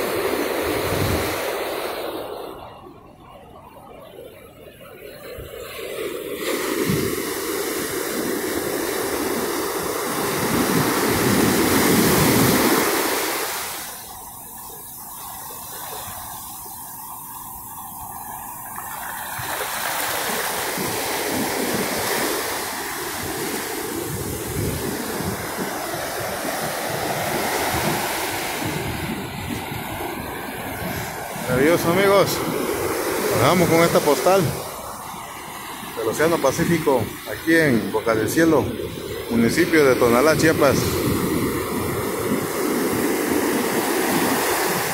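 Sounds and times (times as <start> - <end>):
surf breaking on beach: 0.0 - 2.7, 5.3 - 17.3, 18.8 - 44.9.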